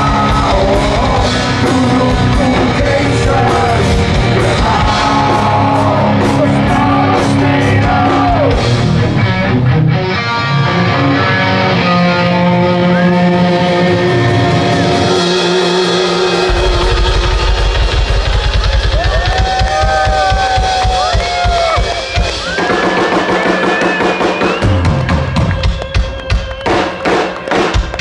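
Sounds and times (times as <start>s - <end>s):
person singing: 0.0s - 8.7s
heavy metal band playing: 0.0s - 28.0s
fast kick drum beat: 16.5s - 28.0s.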